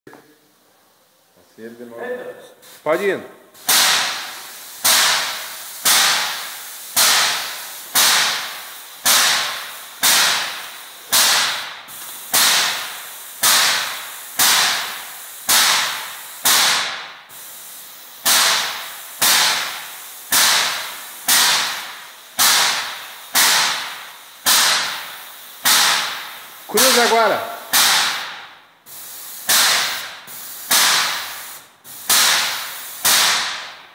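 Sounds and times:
paint sprayer pump hissing bursts: 3.6 - 33.8.

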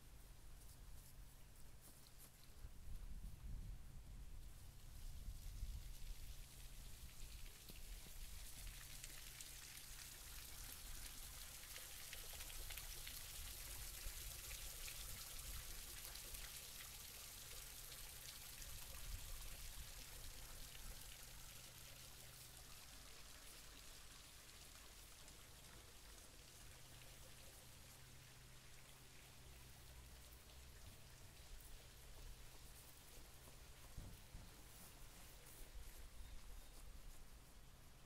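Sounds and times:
light rain pattering: 0.0 - 38.0
faint low hum: 17.2 - 38.0.

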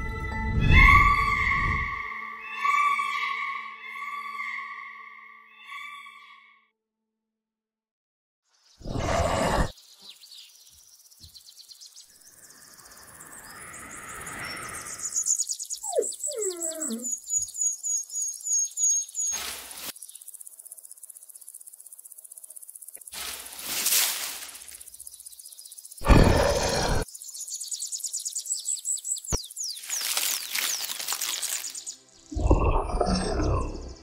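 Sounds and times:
squeaky gliding calls: 0.6 - 6.6.

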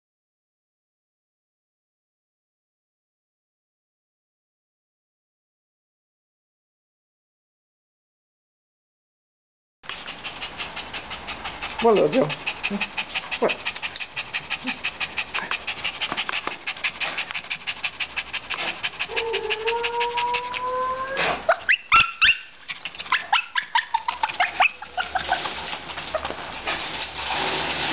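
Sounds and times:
dog panting: 9.8 - 27.2
dog whine: 18.5 - 26.5
dog yips and whimpers: 18.5 - 26.5.

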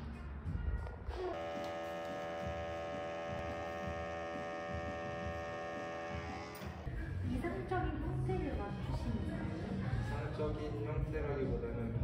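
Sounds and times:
machine electric buzz: 1.3 - 6.9.

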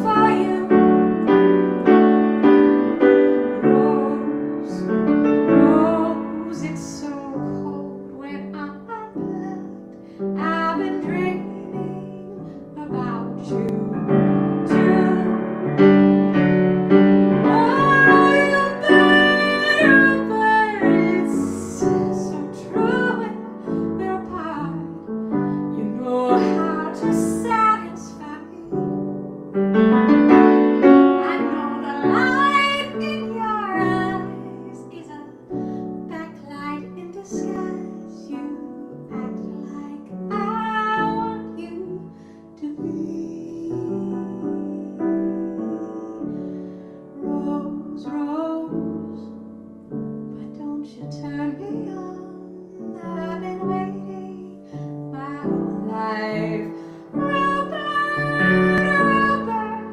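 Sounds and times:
woman singing: 0.0 - 16.0, 17.3 - 29.3, 30.1 - 49.4, 50.4 - 59.9
grand piano: 0.0 - 59.9.

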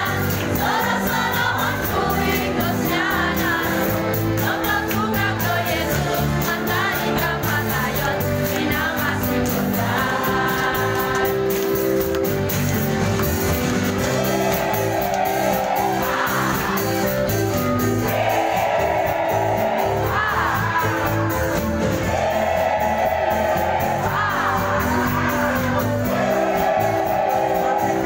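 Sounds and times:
backing music with steady beat: 0.0 - 28.0
congregation singing: 0.0 - 28.0
crowd shouts: 14.0 - 17.0, 18.0 - 21.2, 22.0 - 24.8, 25.8 - 28.0.

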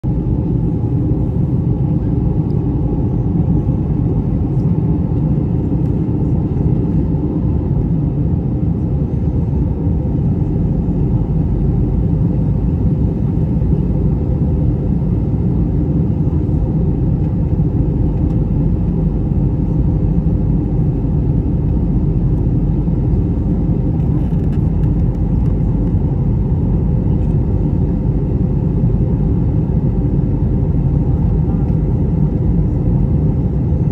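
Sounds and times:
airplane cabin engine rumble: 0.0 - 33.9.

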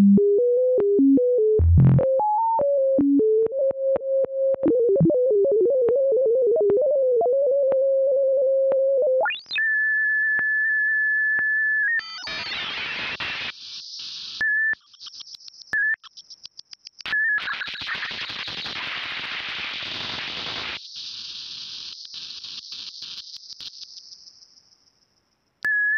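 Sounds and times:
hissing crackling synth noise: 17.8 - 23.8.

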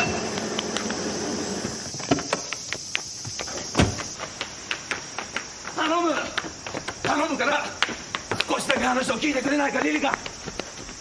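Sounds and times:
car rolling to a stop: 0.0 - 2.5
footsteps running down stone steps: 0.0 - 11.0
high insect drone: 0.0 - 11.0.

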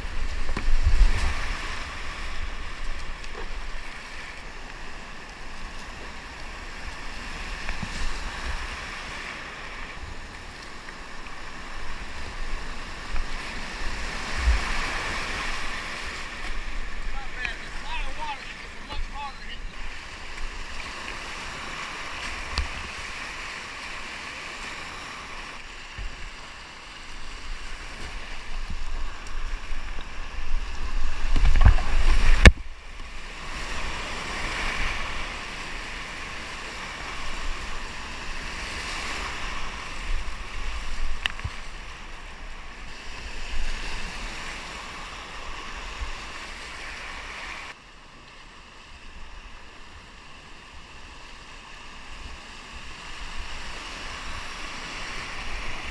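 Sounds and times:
paddle splashes: 0.0 - 47.8
whitewater rapids rushing: 11.2 - 42.4.

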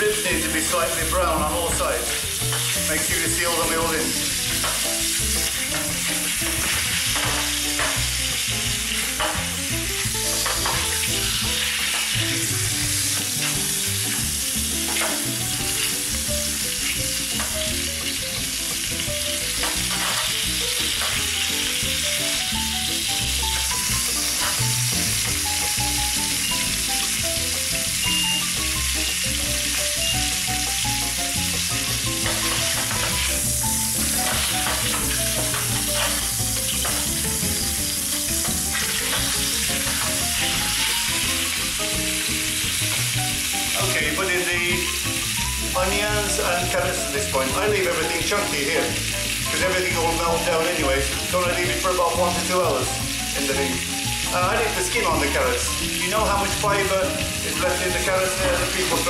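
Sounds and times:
meat sizzling in hot oil: 0.0 - 59.0
wooden spatula scraping metal: 32.2 - 33.3.

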